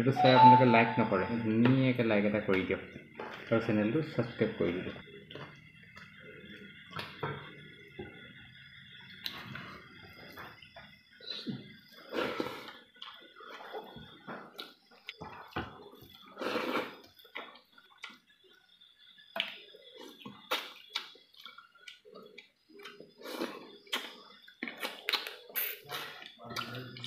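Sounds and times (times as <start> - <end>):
wet chewing and lip smacking: 19.4 - 27.0.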